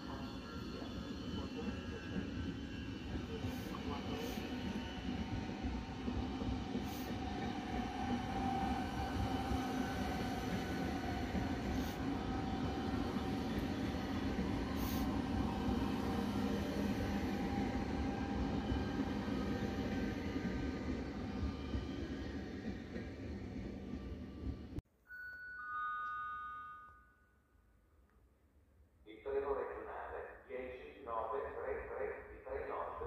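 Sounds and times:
train wheels rumbling on rail: 0.0s - 24.8s.

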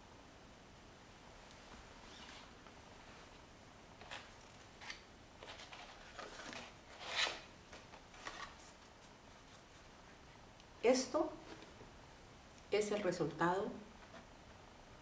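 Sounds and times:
paper rustling: 4.0s - 9.9s.

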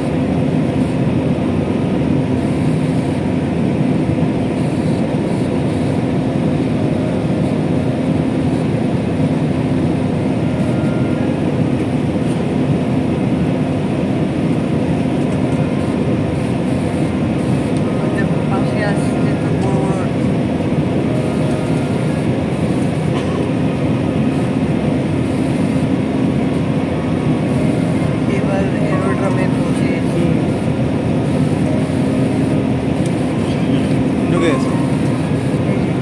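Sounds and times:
airplane cabin roar: 0.0s - 36.0s
steady hum: 0.0s - 36.0s.

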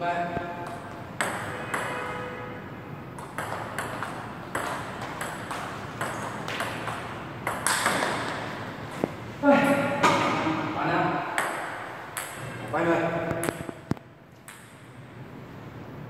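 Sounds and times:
ping pong ball ticking: 0.4s - 1.9s, 3.1s - 9.1s, 11.3s - 12.4s, 13.3s - 14.9s.

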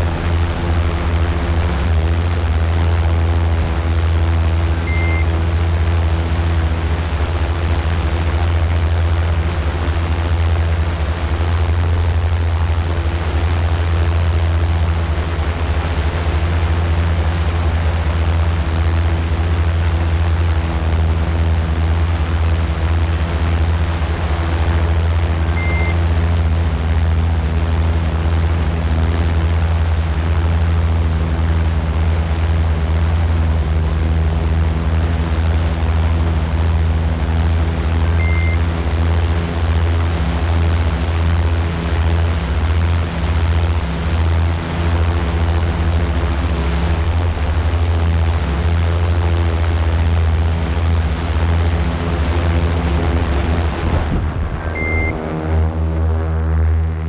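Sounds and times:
drone propellers humming: 0.0s - 57.0s
short high beeps: 4.8s - 5.4s, 25.4s - 26.0s, 38.0s - 38.6s, 54.7s - 55.2s.

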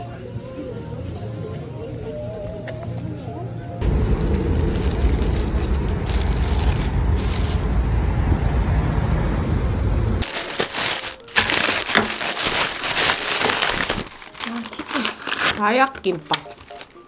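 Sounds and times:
low outdoor rumble: 0.0s - 14.4s
plastic bag crinkling: 3.8s - 7.7s, 10.2s - 17.0s.

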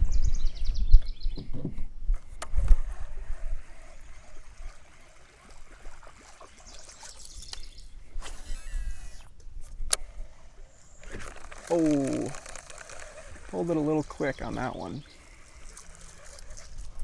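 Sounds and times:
water lapping against kayak hull: 1.4s - 17.0s
small clicks: 9.0s - 10.1s, 11.0s - 13.6s.

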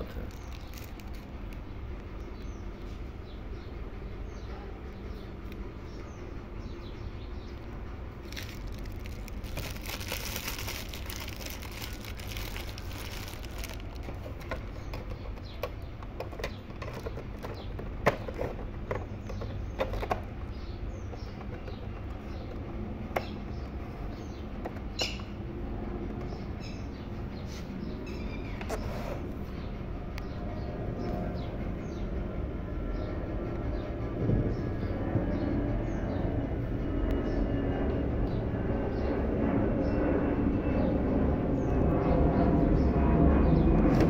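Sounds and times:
steady low rumble: 0.0s - 28.6s, 29.2s - 44.0s
birds chirping: 0.0s - 43.9s
rustling: 8.2s - 14.7s.

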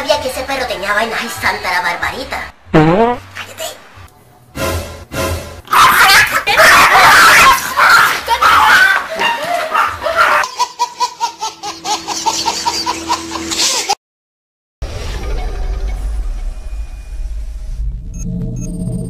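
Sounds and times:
high-pitched laughter: 5.8s - 14.0s.

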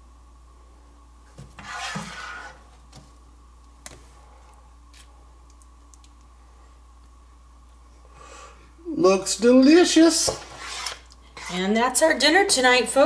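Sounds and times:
utensil scraping: 1.4s - 2.7s, 10.2s - 11.5s.

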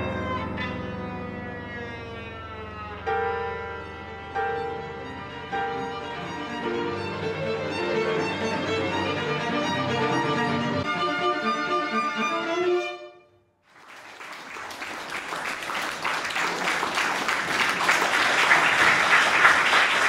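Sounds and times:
bowed strings sustained notes: 0.0s - 13.2s
audience applause: 13.7s - 20.0s.

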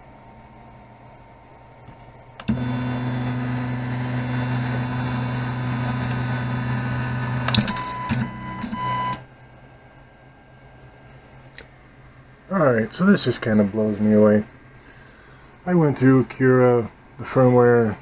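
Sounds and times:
stepper motors humming: 2.2s - 9.3s
printer clicks: 2.4s - 9.2s.

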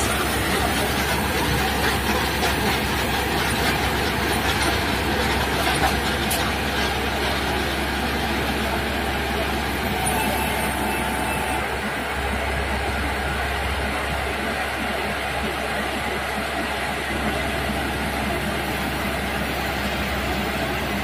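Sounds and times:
combine harvester running: 0.0s - 21.0s.

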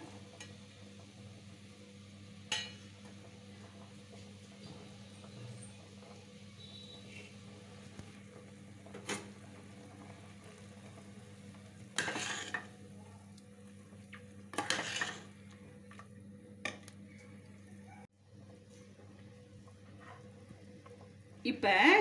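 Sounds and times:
ladle scraping and clinking pot: 12.0s - 12.7s, 14.5s - 15.3s.

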